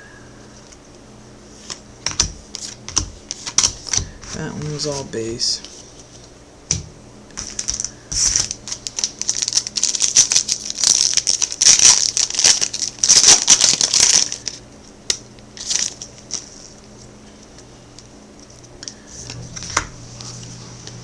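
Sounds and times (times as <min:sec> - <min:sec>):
foil wrapper crinkling: 0:07.3 - 0:17.6.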